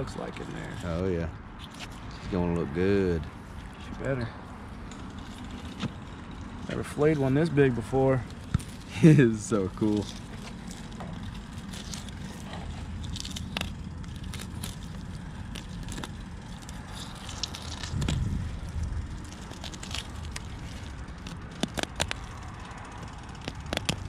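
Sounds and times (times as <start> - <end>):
low rumble: 4.1 - 21.5.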